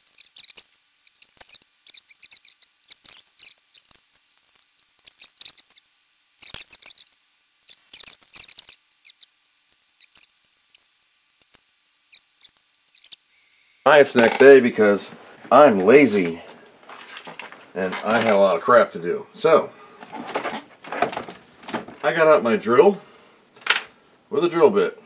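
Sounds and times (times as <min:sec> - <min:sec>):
small clicks and scratches: 0:00.0 - 0:13.2, 0:15.8 - 0:18.5.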